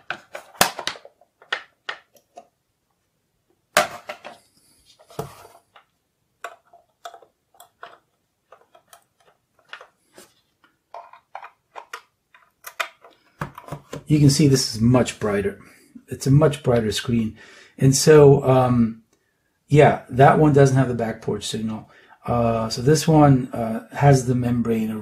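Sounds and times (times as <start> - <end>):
plastic case clicks and knocks: 0.0 - 2.5, 10.6 - 14.1
cable plugs being handled: 0.0 - 2.6, 3.7 - 14.1.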